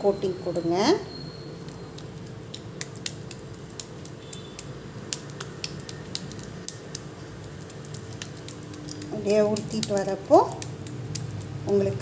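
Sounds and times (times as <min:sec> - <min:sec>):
hands patting wet paste: 0:01.6 - 0:12.0.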